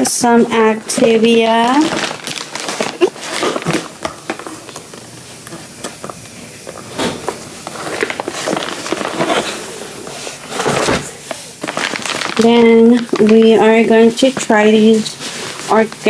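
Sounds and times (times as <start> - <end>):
cardboard case rustling and scraping: 7.7 - 11.1.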